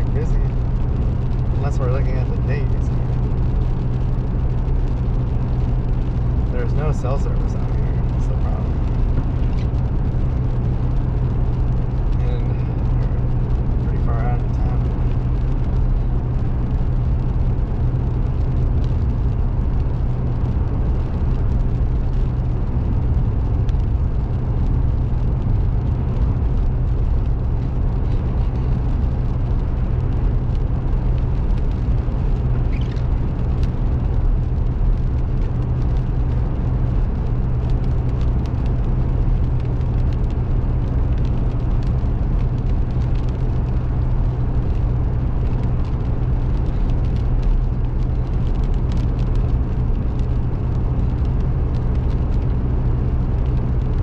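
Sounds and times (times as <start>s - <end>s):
car interior road and engine drone: 0.0s - 54.0s.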